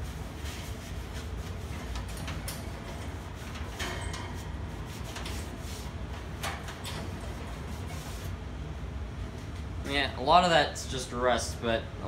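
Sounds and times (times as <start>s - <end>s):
scrubbing fan grill: 0.0s - 8.4s
steady low hum: 0.0s - 12.0s.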